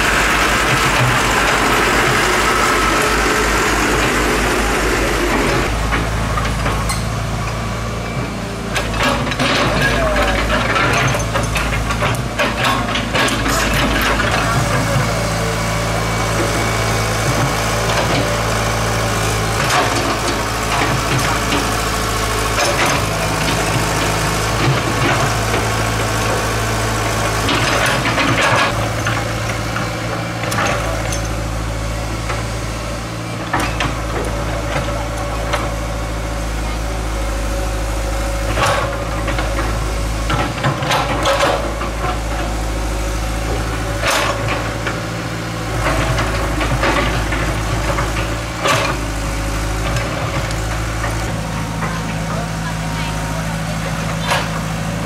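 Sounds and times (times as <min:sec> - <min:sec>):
excavator diesel engine running: 0:00.0 - 0:55.0
knocks and clanks: 0:08.8 - 0:15.2, 0:38.5 - 0:42.6, 0:45.7 - 0:49.1.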